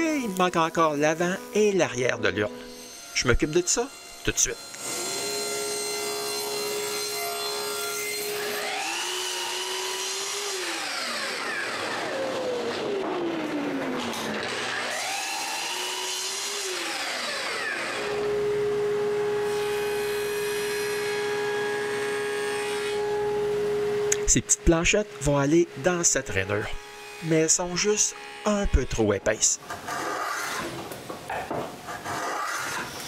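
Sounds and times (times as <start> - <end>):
table saw humming: 0.0 - 33.0
miter saw motor whining: 2.5 - 24.3, 25.1 - 29.1
saw blade winding down: 2.6 - 18.4.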